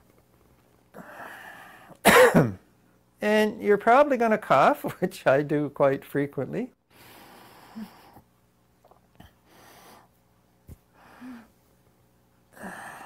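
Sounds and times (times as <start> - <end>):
soft throat sounds: 7.8 - 9.4.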